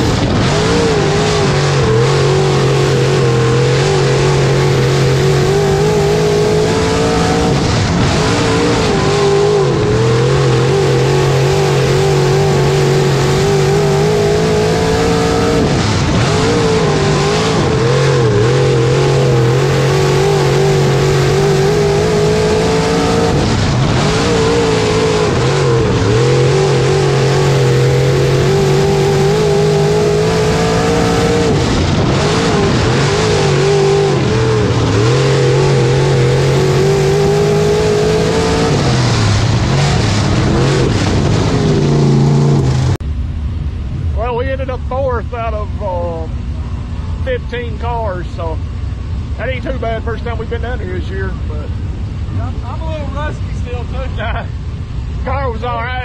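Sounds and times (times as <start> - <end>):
racing engine revving: 0.0 - 43.1
tire and dirt noise: 0.0 - 56.0.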